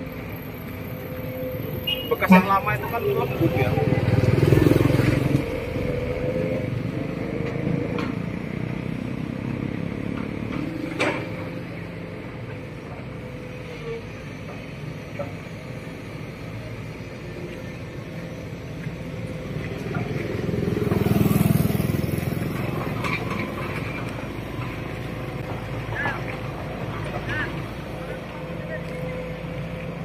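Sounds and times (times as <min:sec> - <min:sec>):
excavator diesel engine running: 0:00.0 - 0:30.0
motorcycle passing: 0:02.7 - 0:11.9, 0:18.2 - 0:27.6.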